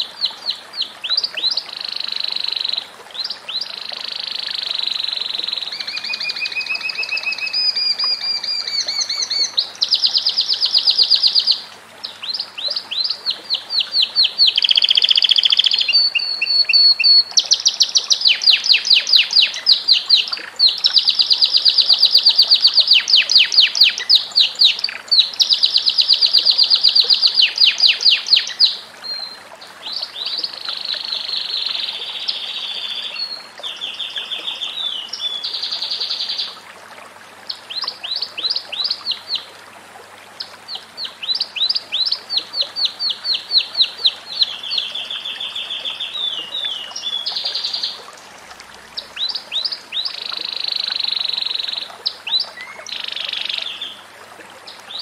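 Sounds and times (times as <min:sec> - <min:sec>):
canary singing trills: 0:03.7 - 0:11.6, 0:12.2 - 0:29.3.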